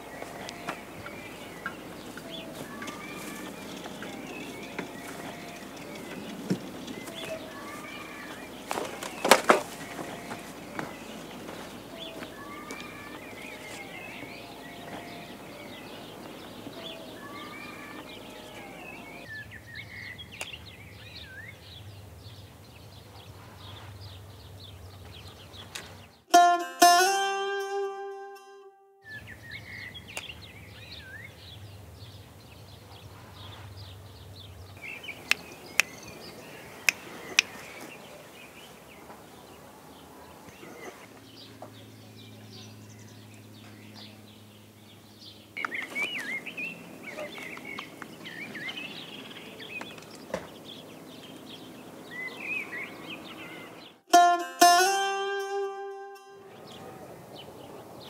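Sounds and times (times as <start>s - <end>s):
plucked-string music: 0.0s - 19.2s, 26.3s - 29.1s, 54.1s - 57.1s
birds chirping: 0.0s - 26.4s, 27.0s - 58.0s.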